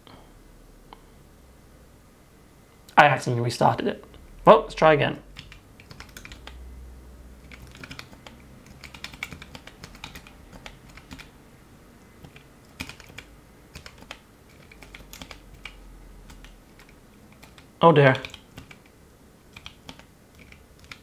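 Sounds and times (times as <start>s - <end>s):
slow uneven keyboard typing: 5.3s - 6.6s, 7.4s - 11.4s, 12.0s - 21.0s.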